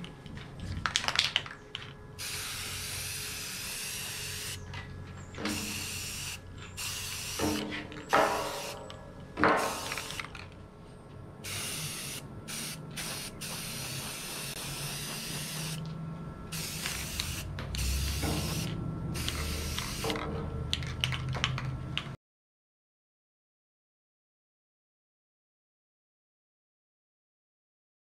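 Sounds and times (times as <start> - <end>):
aerosol spray hissing: 2.2 - 4.6, 5.5 - 7.5, 8.3 - 8.8, 9.6 - 10.2, 11.4 - 15.8, 16.5 - 20.1
aerosol can rattling: 9.6 - 10.4.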